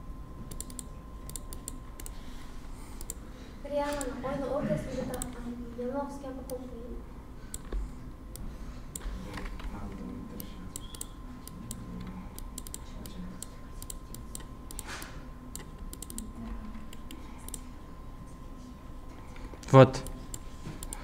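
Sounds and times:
computer keyboard clicking: 0.5 - 2.2, 3.0 - 3.2, 3.9 - 4.1, 5.1 - 5.4, 9.0 - 17.6
mouse clicking: 0.5 - 2.2, 3.0 - 3.2, 3.9 - 4.1, 10.4 - 16.3, 16.9 - 17.6.

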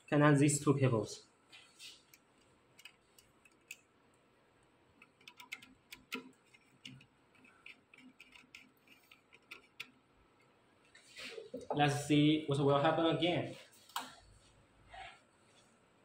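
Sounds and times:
screwdriver clicking on terminals: 2.1 - 3.9, 5.0 - 10.0.

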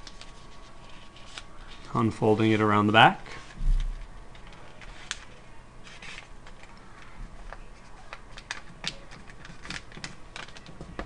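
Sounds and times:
paper crinkling and rustling: 0.0 - 2.0, 3.3 - 11.0.

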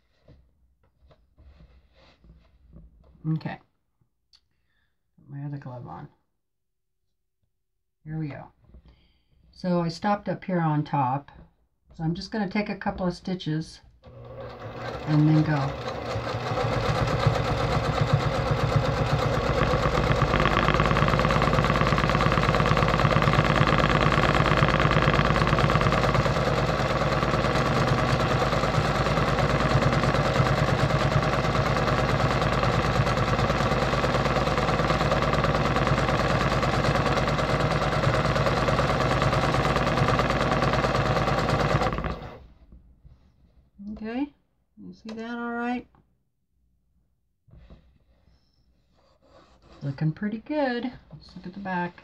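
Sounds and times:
sewing machine stitching: 14.0 - 42.5.

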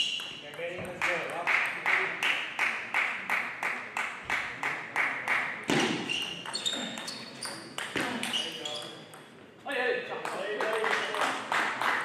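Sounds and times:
shoes squeaking on floor: 0.0 - 0.4, 5.7 - 9.1.

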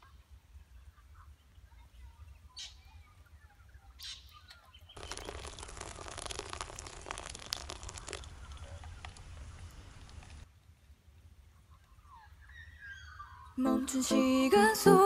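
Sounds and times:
birds chirping: 0.0 - 5.9, 11.5 - 14.1
hot water pouring from kettle: 5.0 - 10.4
wood fire crackling: 5.0 - 11.5.

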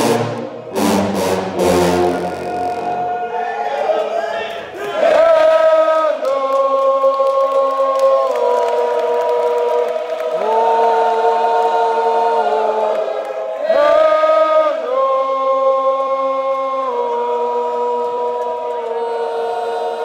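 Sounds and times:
sousaphones playing brass chords: 0.0 - 3.2.

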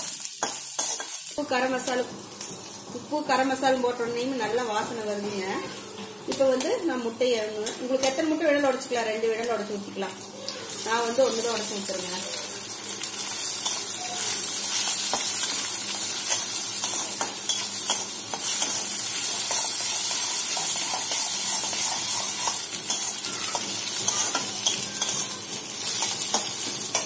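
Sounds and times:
egg sizzling in oil: 0.0 - 3.8, 10.2 - 27.0
metal spatula scraping pan: 19.5 - 27.0.

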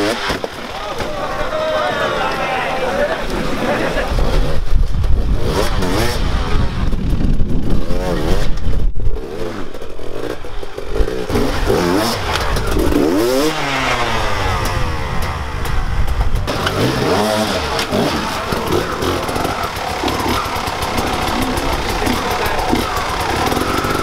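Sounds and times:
dirt bike engines revving: 0.0 - 24.0.

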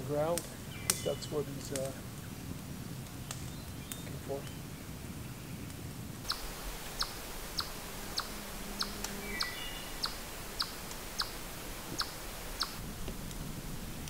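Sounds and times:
chipmunk chipping: 6.2 - 12.8.

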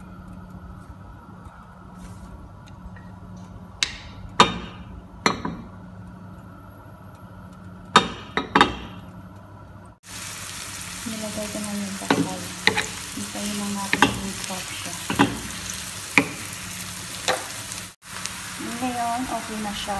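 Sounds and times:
low kitchen hum: 0.0 - 19.9
onions sizzling in oil: 10.0 - 19.9.

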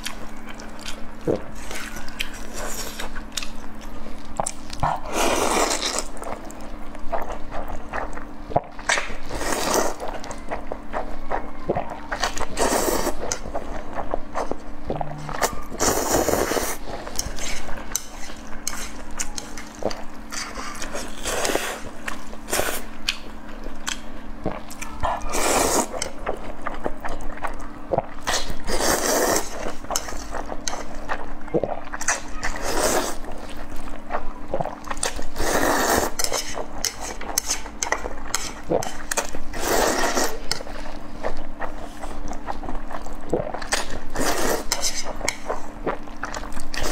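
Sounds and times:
faint steady hum: 0.0 - 46.9
chewing and smacking clicks: 23.0 - 24.1
noodle slurping: 35.4 - 36.6, 38.4 - 40.5.

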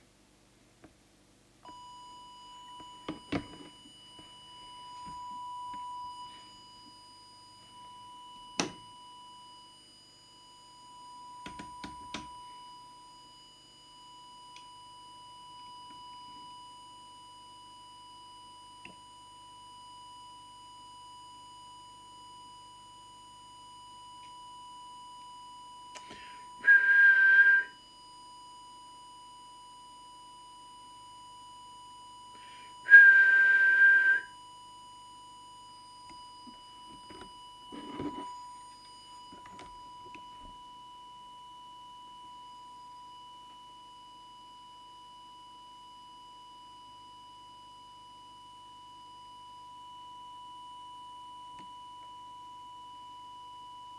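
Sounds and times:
pure test tone: 23.6 - 27.9, 31.6 - 43.6
high whistle with hiss: 25.9 - 28.0, 32.1 - 34.6.

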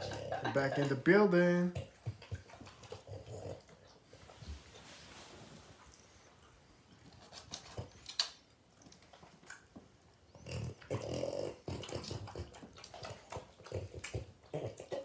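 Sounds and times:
dogs chewing and lip-smacking: 0.0 - 4.7, 6.0 - 15.0
dog mouth clicks: 7.3 - 9.7.

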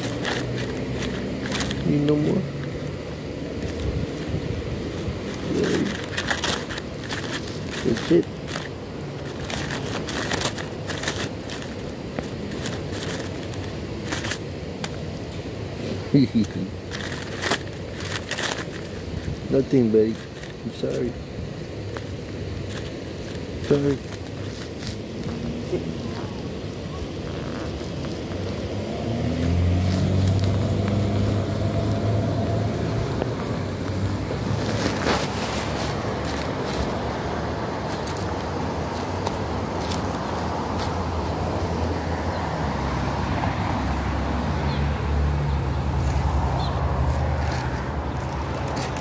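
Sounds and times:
paper bag crinkling: 0.0 - 2.4, 3.4 - 15.1, 15.8 - 41.7
low engine drone: 22.2 - 37.9.

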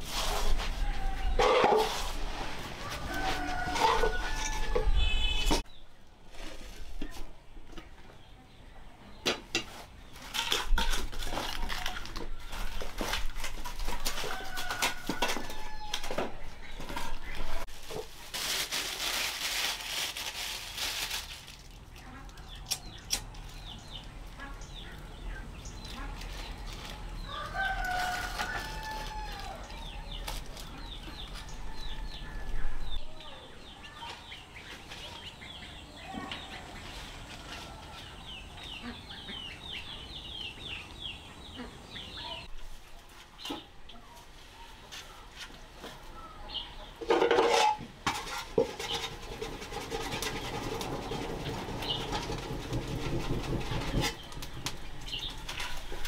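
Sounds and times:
chickens clucking: 0.7 - 5.3, 23.7 - 28.8, 29.7 - 56.0
rooster crowing: 2.8 - 5.4, 14.2 - 16.3, 27.3 - 29.8
noisy rustle: 17.0 - 22.1, 48.1 - 56.0.

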